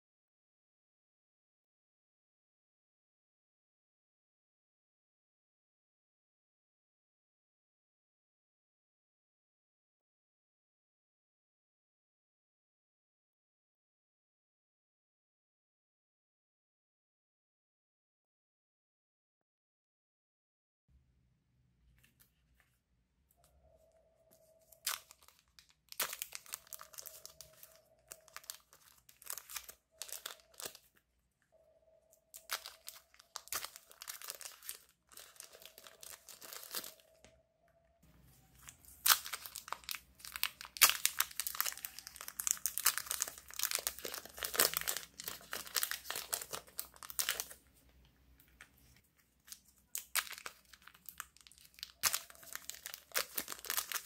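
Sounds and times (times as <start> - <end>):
plastic wrappers crinkling and tearing: 24.6 - 31.0, 32.3 - 37.2, 38.5 - 47.7, 48.6 - 54.0.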